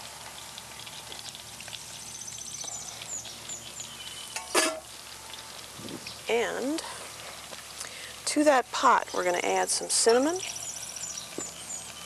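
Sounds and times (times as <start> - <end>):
butter sizzling in saucepan: 0.0 - 12.0
birds chirping: 1.8 - 4.6, 5.3 - 6.5, 10.4 - 12.0.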